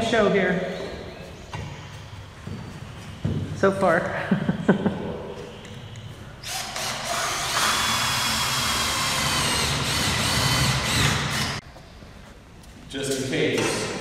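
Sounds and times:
cordless drill boring into steel: 6.4s - 11.6s.

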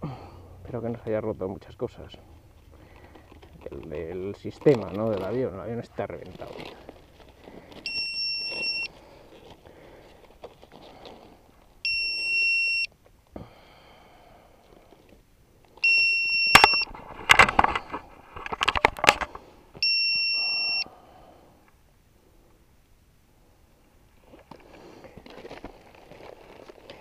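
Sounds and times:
crackling foam and wiring handling: 0.7s - 11.9s, 14.6s - 19.9s, 24.1s - 27.0s
high electronic buzzer beep: 7.8s - 8.9s, 11.8s - 12.9s, 15.8s - 16.9s, 19.8s - 20.8s.

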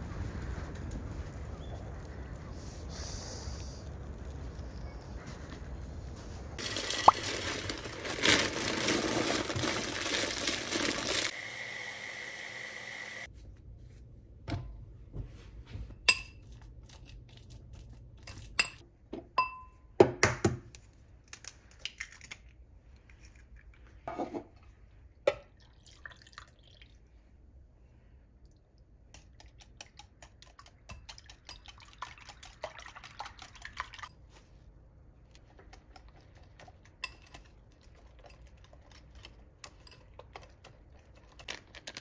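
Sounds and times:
oats pouring into glass jar: 6.6s - 11.4s
utensil clinking on glass bowl: 16.1s - 16.5s, 18.3s - 18.8s.

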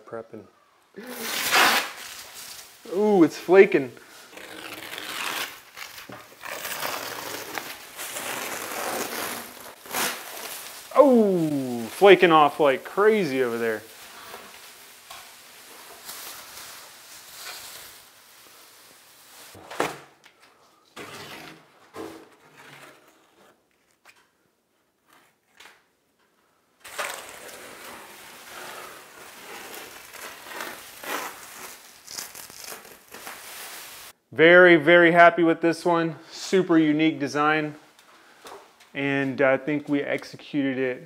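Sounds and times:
plastic sheet crinkling: 1.0s - 19.6s, 26.8s - 34.2s
tape tearing: 1.0s - 19.6s, 26.8s - 34.1s.

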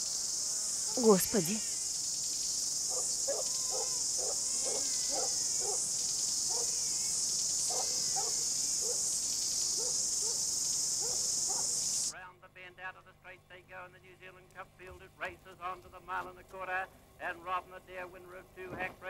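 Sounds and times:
insects chorus: 0.0s - 12.2s
short pitched cries: 3.3s - 5.6s.

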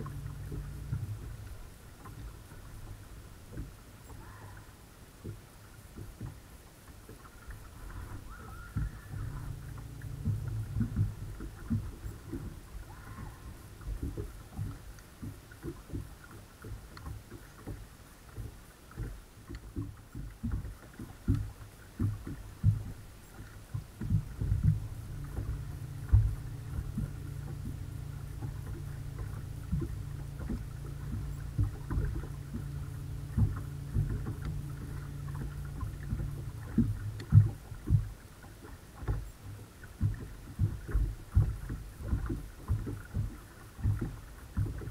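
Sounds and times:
electric trolling motor hum: 0.0s - 3.4s, 7.3s - 14.9s, 22.1s - 38.6s
water lapping against boat hull: 0.0s - 44.9s.

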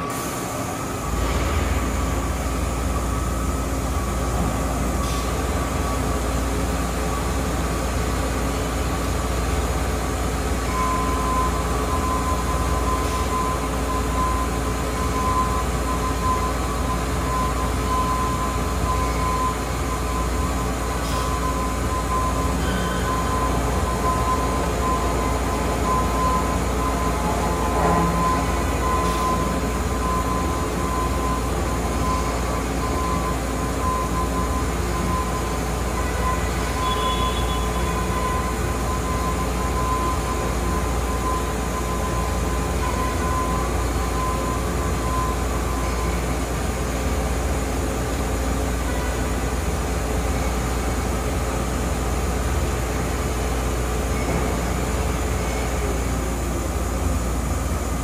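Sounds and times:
lathe mechanical hum: 0.0s - 58.0s
machine whining tones: 10.7s - 46.4s.

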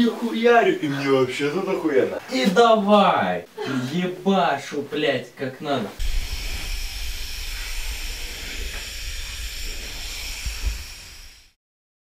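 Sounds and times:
pressure washer spraying: 6.0s - 11.6s.

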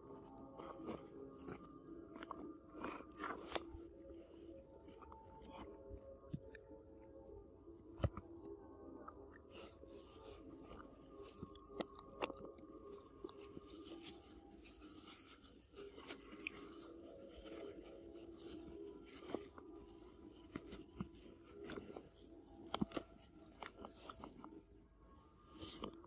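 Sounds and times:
monkey chewing fruit crunches: 0.0s - 7.0s, 9.4s - 26.0s.

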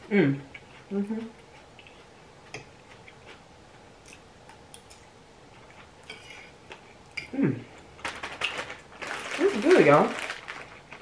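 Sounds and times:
person humming: 7.3s - 7.7s.

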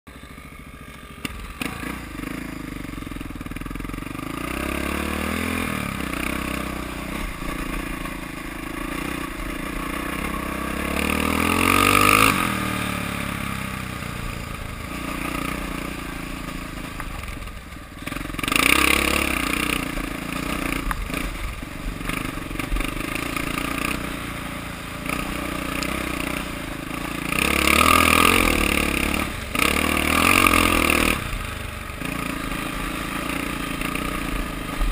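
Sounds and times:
dirt bike engine accelerating: 0.1s - 34.9s.

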